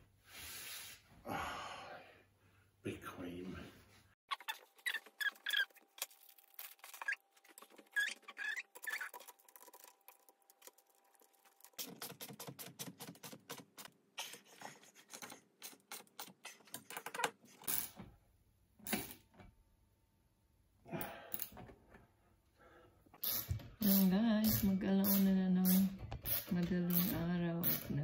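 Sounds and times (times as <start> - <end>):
metal squeaks and scrapes: 4.3 - 5.8, 6.8 - 9.4.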